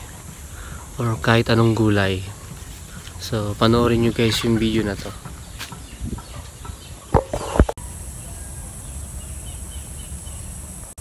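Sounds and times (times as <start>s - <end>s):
chicken clucking: 3.7s - 7.7s
high-pitched insect drone: 7.3s - 11.0s.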